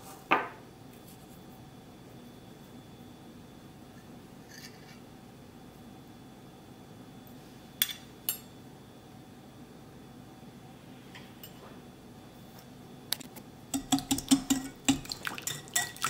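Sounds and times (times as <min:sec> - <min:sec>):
faint room hum: 0:00.0 - 0:16.0
metal spoon clinking glass bowl: 0:13.7 - 0:16.0.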